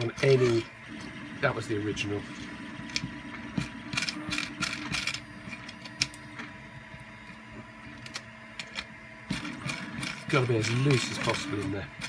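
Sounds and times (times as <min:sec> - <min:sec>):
plastic parts clicking and tapping: 0:07.9 - 0:11.7.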